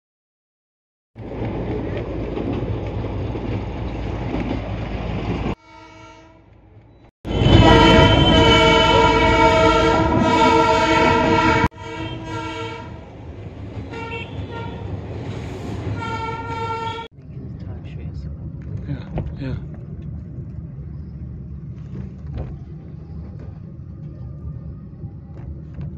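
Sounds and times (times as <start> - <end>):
train rumbling: 1.2 - 25.9
train horn: 5.6 - 6.5, 7.3 - 13.1, 13.9 - 14.9, 16.0 - 17.1.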